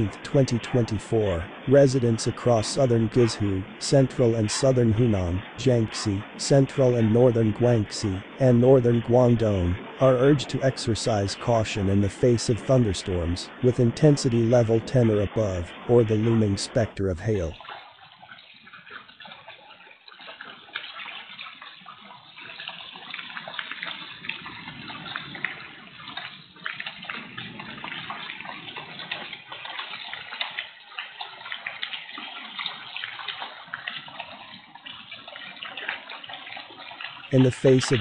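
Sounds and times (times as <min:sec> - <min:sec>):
heavy rain hissing: 0:00.0 - 0:17.5, 0:37.3 - 0:38.0.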